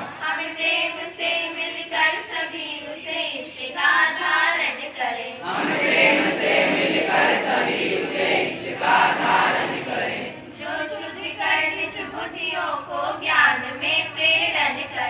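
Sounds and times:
girls singing a prayer: 0:00.0 - 0:15.0
large group singing in unison: 0:00.0 - 0:15.0.

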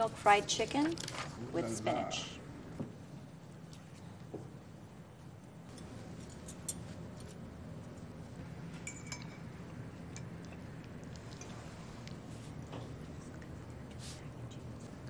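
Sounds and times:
low room hum: 0:00.0 - 0:15.0
forks clinking on plates: 0:08.8 - 0:10.3.

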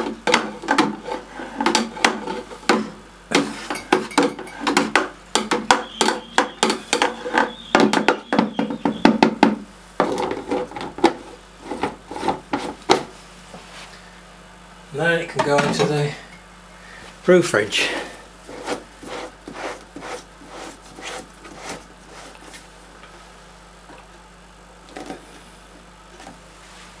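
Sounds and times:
spoon knocking plastic bucket: 0:01.6 - 0:10.3.

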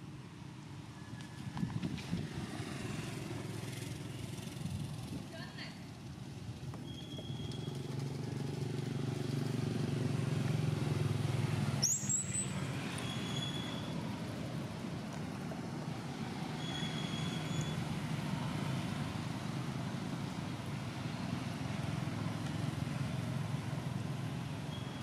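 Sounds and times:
engine low rumble: 0:00.0 - 0:25.0
faint thin high whistles: 0:06.8 - 0:07.8, 0:11.8 - 0:13.9, 0:16.6 - 0:17.8, 0:24.7 - 0:25.0
short high squeak: 0:06.8 - 0:07.8, 0:11.8 - 0:14.0, 0:16.5 - 0:17.8, 0:24.7 - 0:25.0.

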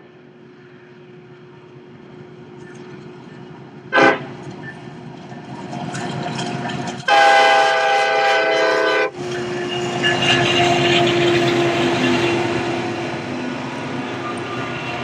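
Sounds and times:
diesel locomotive engine rumble: 0:00.0 - 0:15.0
train horn blast: 0:03.9 - 0:04.3, 0:07.1 - 0:12.8.

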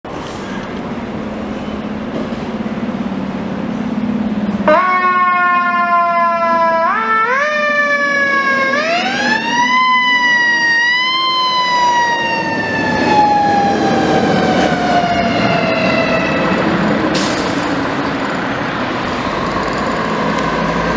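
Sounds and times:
mechanical siren wailing: 0:04.7 - 0:16.6.

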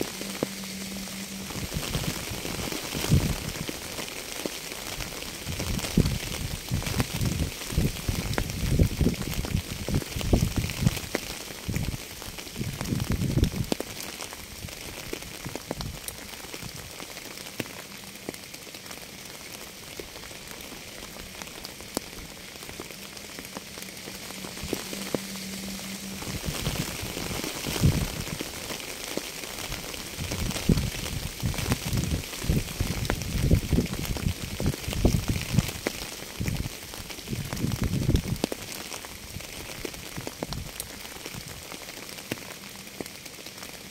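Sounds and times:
faint steady low tone: 0:00.0 - 0:03.5
steady rainfall: 0:00.0 - 0:43.9.

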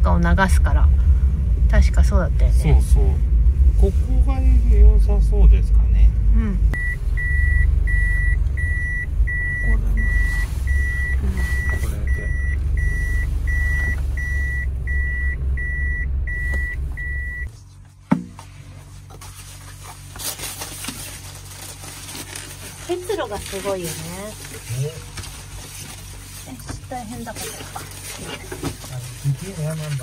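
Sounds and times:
van engine rumble: 0:00.0 - 0:30.0
reverse warning beeper: 0:06.8 - 0:17.5.

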